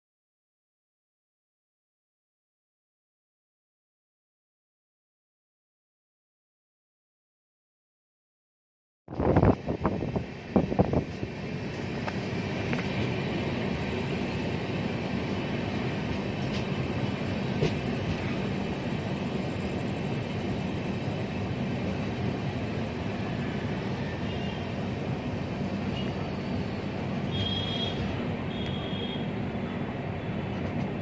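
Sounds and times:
train running past: 0:09.1 - 0:31.0.

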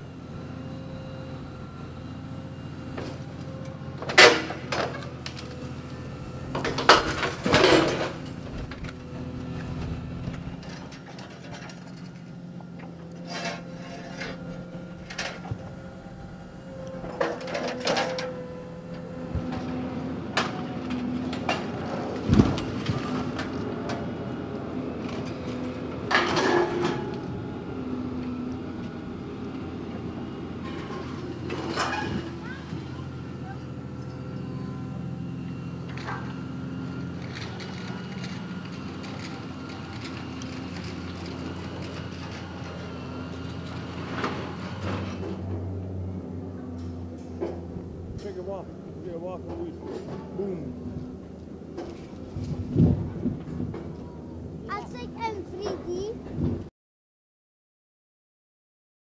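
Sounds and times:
excavator diesel engine running: 0:00.0 - 0:56.2
demolition shear banging on steel: 0:03.9 - 0:05.3, 0:06.3 - 0:12.2.

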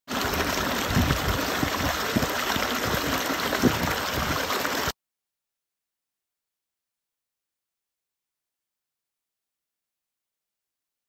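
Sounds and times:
stream rushing over rocks: 0:00.1 - 0:04.9.

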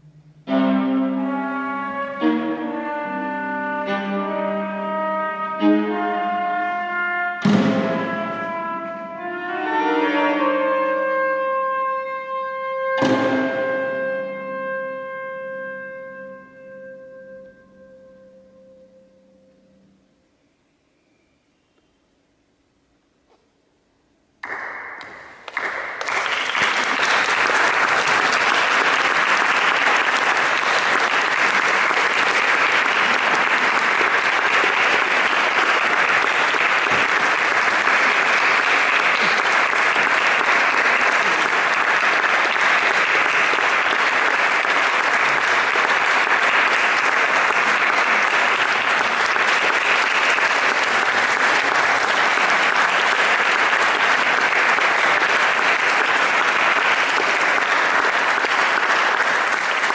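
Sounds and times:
audience applauding: 0:24.4 - 0:59.9.

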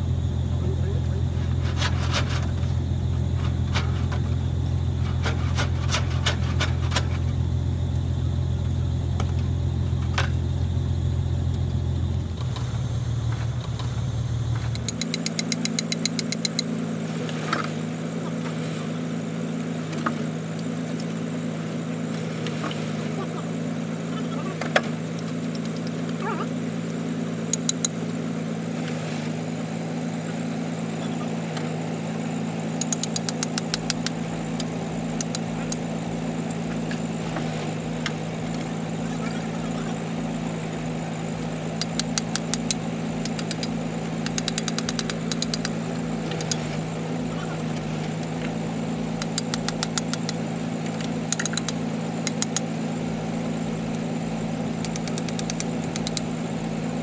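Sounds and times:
drilling rig engine running: 0:00.0 - 0:57.0
rapid sharp clicks: 0:14.6 - 0:16.7, 0:27.5 - 0:28.0, 0:32.8 - 0:37.0, 0:41.4 - 0:46.9, 0:48.1 - 0:52.7, 0:54.7 - 0:56.4.

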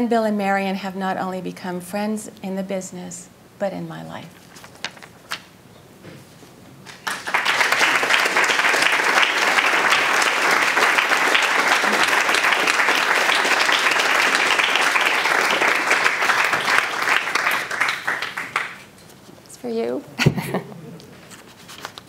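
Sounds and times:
audience applauding: 0:06.9 - 0:18.9.

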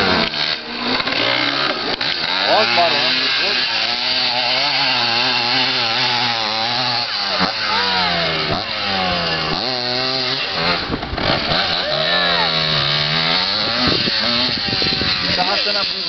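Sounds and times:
dirt bike engine revving: 0:00.0 - 0:16.0
rush of rough noise: 0:06.1 - 0:16.0.

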